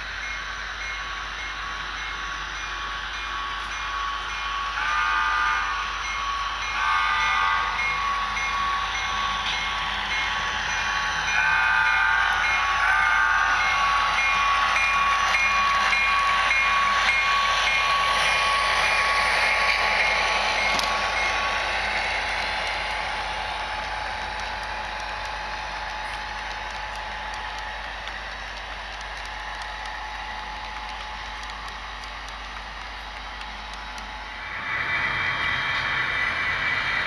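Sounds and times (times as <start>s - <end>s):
model locomotive horn blasts: 3.3s - 8.9s, 11.3s - 13.7s.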